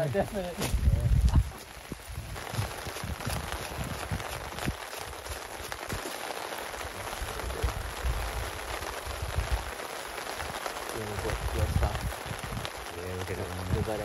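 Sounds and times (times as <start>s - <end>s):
steady rain hiss: 0.0s - 14.0s.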